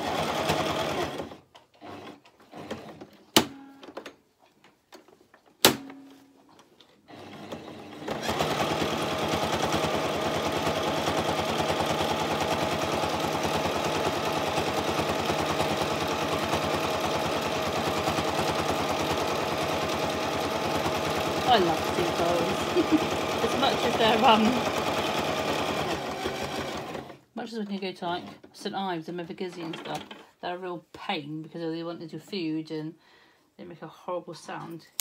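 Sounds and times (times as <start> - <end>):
electric sewing machine stitching: 0.0 - 3.2, 7.1 - 27.2.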